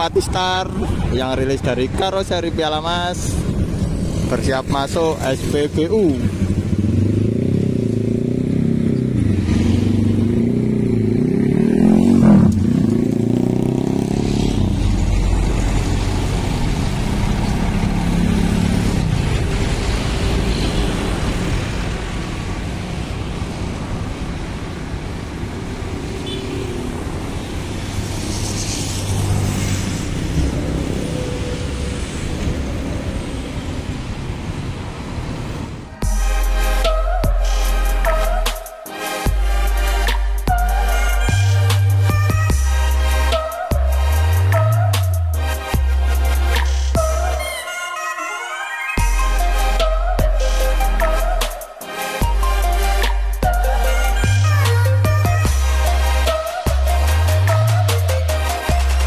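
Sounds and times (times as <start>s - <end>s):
bus diesel engine running: 14.5s - 37.6s.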